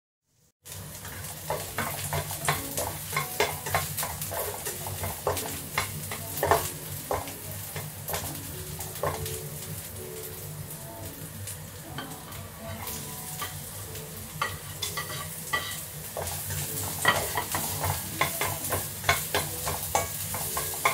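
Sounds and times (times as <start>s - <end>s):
food sizzling in oil: 0.3s - 20.9s
spatula knocking and scraping pan: 1.0s - 8.4s, 9.0s - 9.3s, 14.4s - 20.9s.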